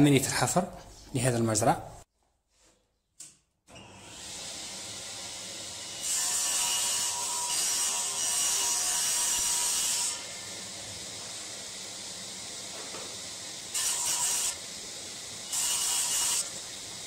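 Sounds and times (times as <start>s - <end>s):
table saw running: 3.7s - 17.0s
saw blade cutting plywood: 5.1s - 10.5s, 12.7s - 14.6s, 15.4s - 16.8s.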